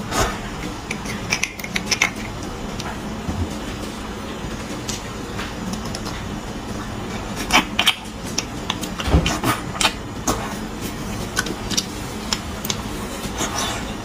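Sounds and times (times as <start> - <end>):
steady low hum: 0.0 - 14.0
metal spoon scraping bone: 0.6 - 2.4
wet chewing and sucking: 4.8 - 14.0.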